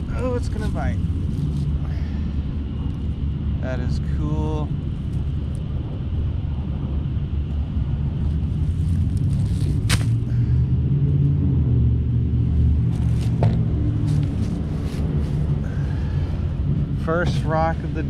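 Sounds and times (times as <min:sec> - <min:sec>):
steady low rumble: 0:00.0 - 0:18.0
sharp rustles: 0:08.2 - 0:10.3, 0:12.9 - 0:15.6.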